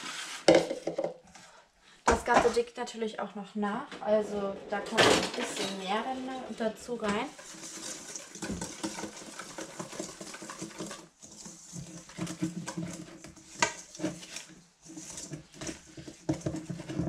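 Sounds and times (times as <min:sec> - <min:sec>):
whisk beating batter in metal bowl: 0:07.0 - 0:17.0
whisk clinking metal bowl: 0:07.1 - 0:17.0.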